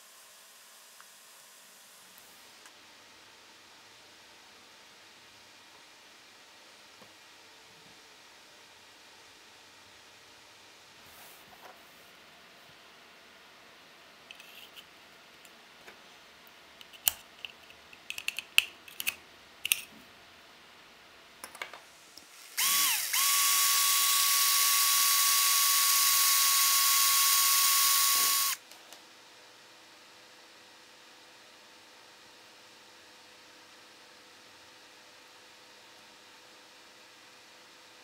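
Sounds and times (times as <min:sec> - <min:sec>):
power drill boring through plastic: 0:22.4 - 0:28.6.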